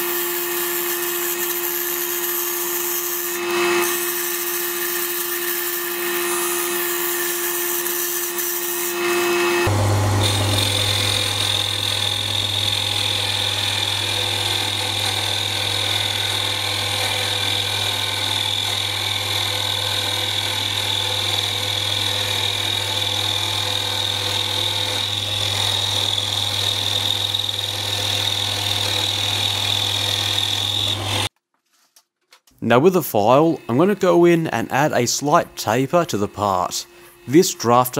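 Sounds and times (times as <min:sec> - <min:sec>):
metal lathe running: 0:00.1 - 0:31.3.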